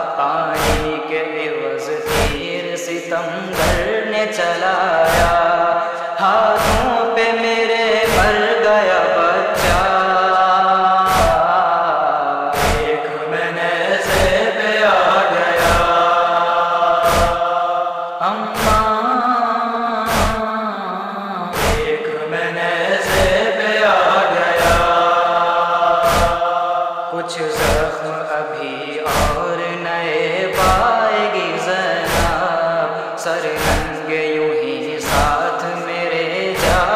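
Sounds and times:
chorus humming and chanting: 0:00.0 - 0:36.9
chest-beating thuds: 0:00.6 - 0:01.0, 0:02.1 - 0:02.5, 0:03.6 - 0:03.9, 0:05.1 - 0:05.5, 0:06.6 - 0:06.9, 0:08.0 - 0:08.5, 0:09.6 - 0:10.0, 0:11.1 - 0:11.5, 0:12.6 - 0:13.0, 0:14.1 - 0:14.4, 0:15.6 - 0:16.1, 0:16.9 - 0:17.7, 0:20.1 - 0:20.4, 0:21.6 - 0:22.0, 0:23.1 - 0:23.4, 0:24.6 - 0:25.0, 0:25.9 - 0:26.6, 0:27.6 - 0:27.9, 0:29.1 - 0:29.4, 0:32.1 - 0:32.4, 0:33.6 - 0:34.0, 0:35.0 - 0:35.4, 0:36.6 - 0:36.9.

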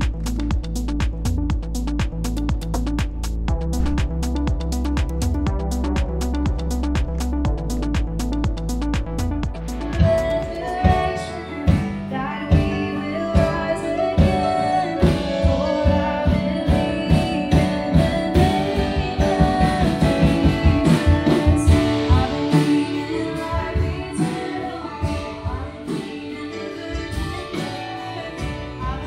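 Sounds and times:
drum kit steady beat: 0:00.0 - 0:29.0
person singing: 0:09.9 - 0:29.0
worship band playing: 0:13.4 - 0:29.0.

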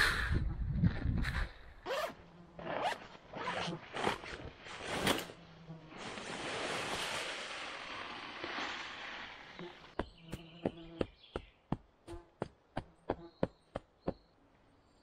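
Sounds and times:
zippers rasping open: 0:01.8 - 0:05.3
rushing hiss of contents pouring: 0:06.0 - 0:09.6.

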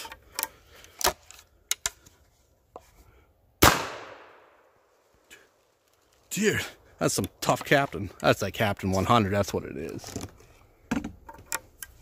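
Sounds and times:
shotgun shot echoing: 0:03.6 - 0:04.6.

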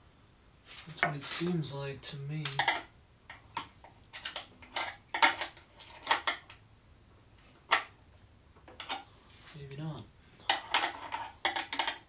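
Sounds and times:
hand tools clinking on metal: 0:02.4 - 0:02.9.

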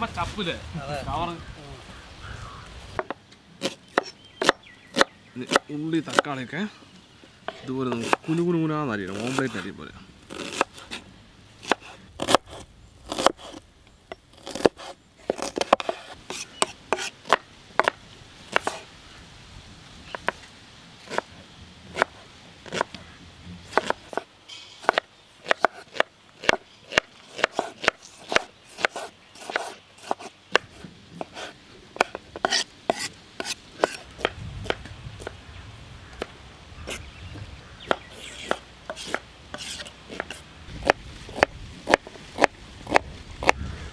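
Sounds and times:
knife chopping on wooden board: 0:07.5 - 0:08.3, 0:14.4 - 0:18.8, 0:23.7 - 0:35.3, 0:37.9 - 0:43.6.

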